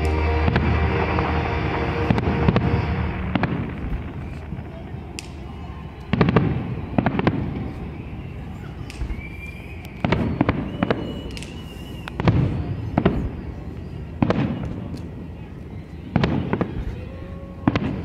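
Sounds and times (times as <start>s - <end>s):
fireworks booming: 0.0s - 15.0s, 16.1s - 18.0s
faint high whistle: 5.2s - 17.6s.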